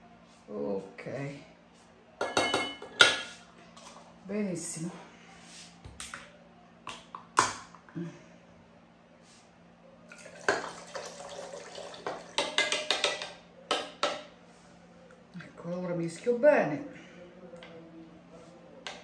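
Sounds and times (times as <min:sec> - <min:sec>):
utensils and dishes clinking: 0:02.2 - 0:03.4.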